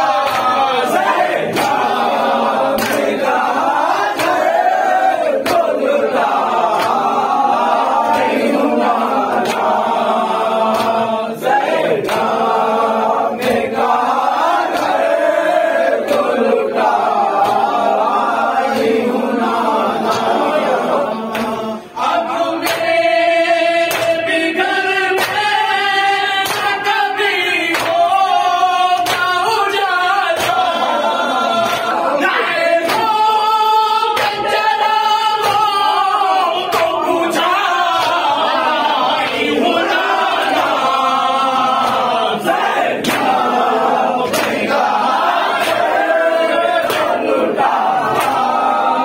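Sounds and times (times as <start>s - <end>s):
crowd chanting in unison: 0.0s - 49.0s.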